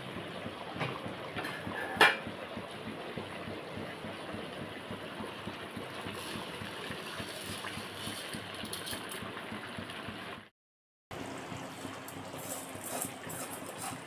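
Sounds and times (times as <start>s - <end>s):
pot boiling and bubbling: 0.0s - 10.5s, 11.1s - 14.0s
rice pouring into liquid: 5.8s - 10.4s.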